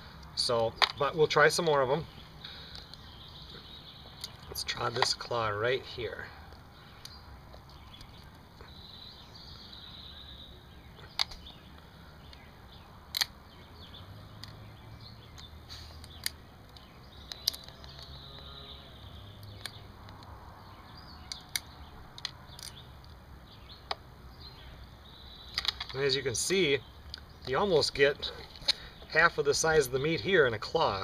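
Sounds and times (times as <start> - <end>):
crayfish shell cracking: 13.1 - 13.4, 15.4 - 18.2.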